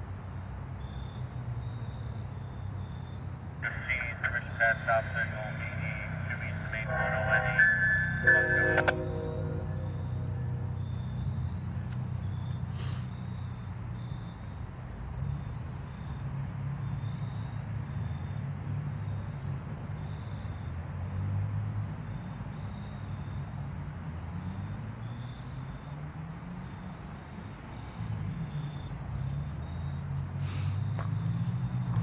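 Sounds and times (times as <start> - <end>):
locomotive engine rumbling: 3.6 - 14.0.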